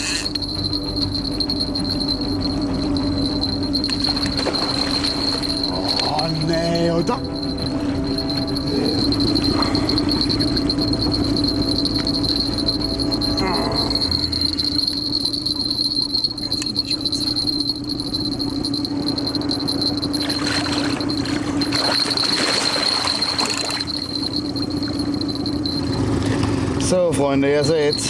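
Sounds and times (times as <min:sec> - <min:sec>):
constant high tone: 0:00.0 - 0:28.0
steady low hum: 0:00.0 - 0:28.0
fish splashing in water: 0:20.2 - 0:24.1.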